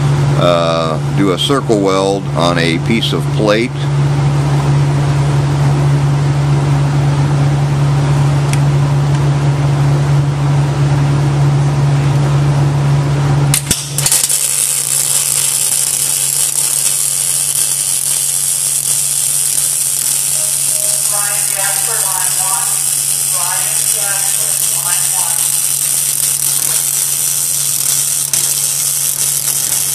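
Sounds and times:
welding equipment hum: 0:00.0 - 0:29.9
sharp click: 0:13.5 - 0:14.4
welding arc crackling hiss: 0:13.5 - 0:29.9.

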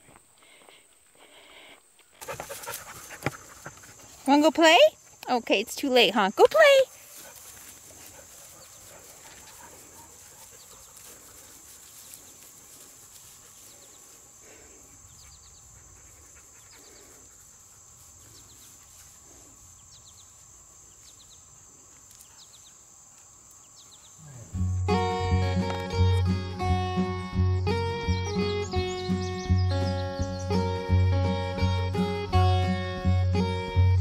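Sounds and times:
bird chirping: 0:15.0 - 0:17.2, 0:19.7 - 0:21.6, 0:22.2 - 0:33.1.

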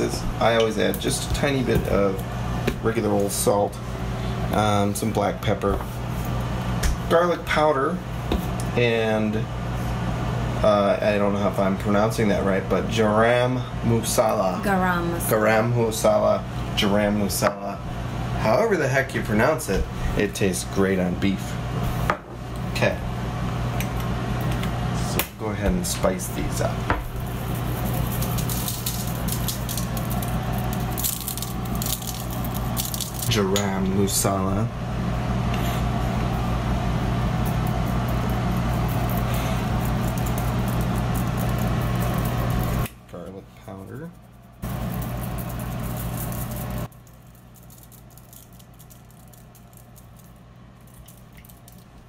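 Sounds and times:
steady low hum: 0:00.0 - 0:52.0
spice shaker rattling: 0:27.1 - 0:33.3, 0:37.5 - 0:42.8, 0:44.1 - 0:52.0
seasoning ticking on meat: 0:37.5 - 0:42.9, 0:44.6 - 0:52.0.

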